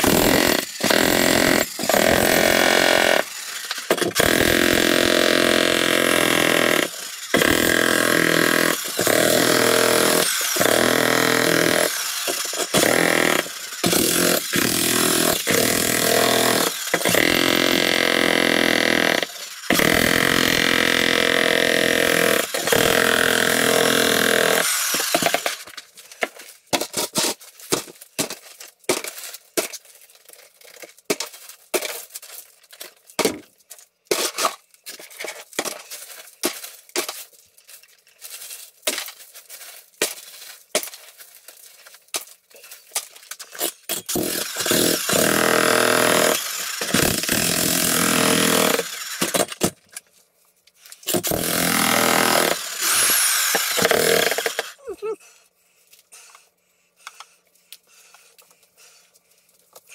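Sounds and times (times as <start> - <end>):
jackhammer breaking concrete: 0.0 - 25.8, 43.0 - 49.8, 51.1 - 54.8.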